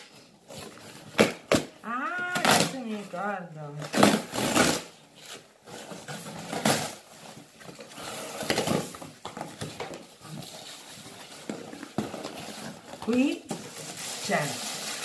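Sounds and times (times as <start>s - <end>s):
cardboard ripping and scraping: 3.8s - 15.0s.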